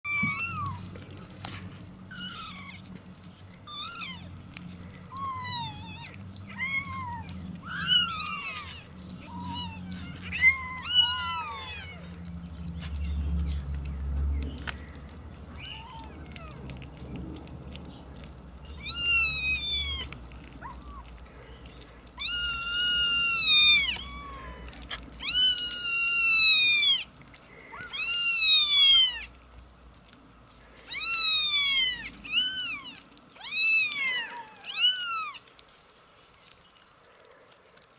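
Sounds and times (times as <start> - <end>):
kittens mewing: 0.0 - 0.9, 3.6 - 12.2, 18.6 - 29.4, 30.8 - 35.6.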